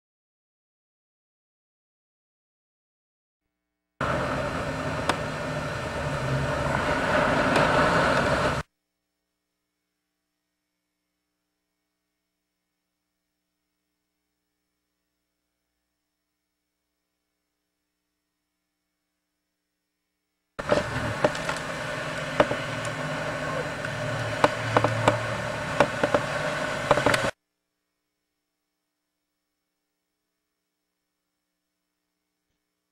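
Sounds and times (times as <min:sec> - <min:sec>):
diesel boat engine drone: 0:04.0 - 0:08.6, 0:20.6 - 0:27.3
water rushing and spray: 0:04.0 - 0:08.6, 0:20.6 - 0:27.3
sharp clicks: 0:23.8 - 0:27.4.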